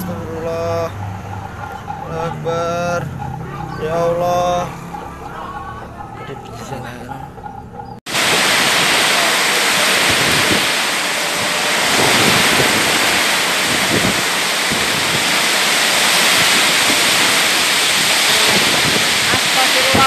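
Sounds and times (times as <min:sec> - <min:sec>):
storm wind: 0:07.3 - 0:20.0
torrential rain: 0:08.1 - 0:20.0.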